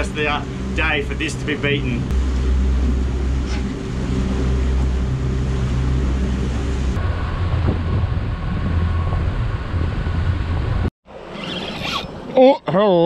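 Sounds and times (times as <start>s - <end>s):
outboard motor running: 0.0s - 7.0s
water noise: 0.0s - 12.4s
wind: 0.0s - 13.0s.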